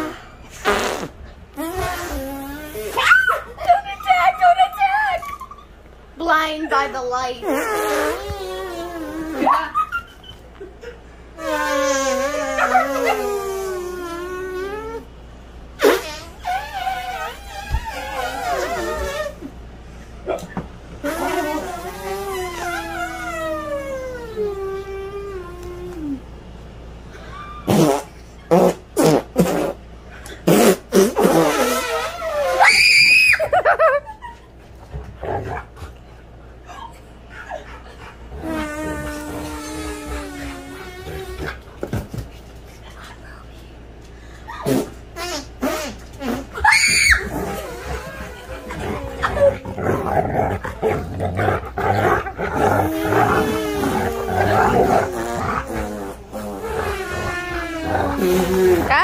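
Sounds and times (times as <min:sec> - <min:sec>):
mouth fart raspberries: 0:00.0 - 0:03.3, 0:07.4 - 0:09.9, 0:11.4 - 0:15.1, 0:15.8 - 0:19.5, 0:21.0 - 0:26.2, 0:27.6 - 0:32.9, 0:38.3 - 0:42.1, 0:44.6 - 0:59.0
dog growling and grumbling: 0:12.2 - 0:15.1, 0:17.1 - 0:19.4, 0:34.9 - 0:35.9, 0:37.5 - 0:41.8, 0:47.2 - 0:59.0.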